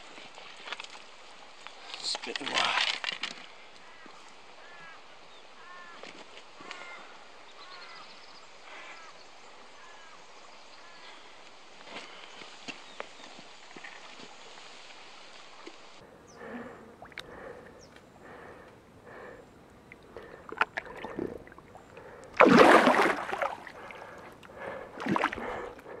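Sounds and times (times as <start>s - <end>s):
fish sloshing in shallow water: 19.1s - 25.9s
fish splashing: 19.9s - 25.9s.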